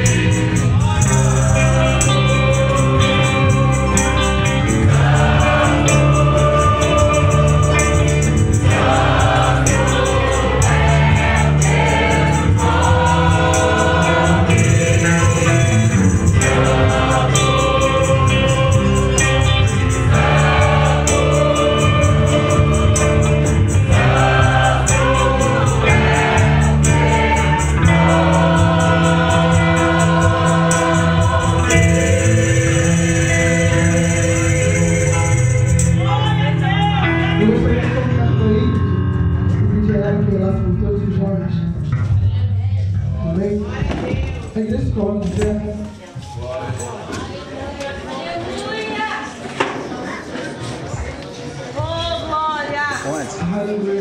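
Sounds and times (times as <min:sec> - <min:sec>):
quick percussion beat: 0:00.0 - 0:36.1
choir singing gospel song: 0:00.0 - 0:38.3
strong bass line: 0:00.0 - 0:43.8.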